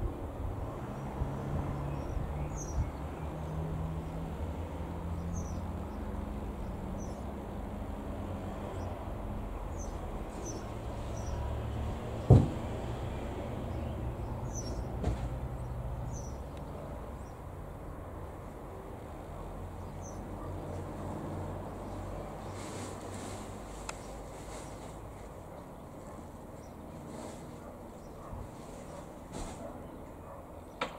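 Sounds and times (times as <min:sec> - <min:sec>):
small birds chirping: 0:01.0 - 0:04.2, 0:05.1 - 0:07.3, 0:09.6 - 0:11.5, 0:13.4 - 0:18.0, 0:19.6 - 0:21.0, 0:21.8 - 0:30.9
sharp thump: 0:12.2 - 0:12.8, 0:15.0 - 0:15.4
small knock: 0:12.3 - 0:12.6.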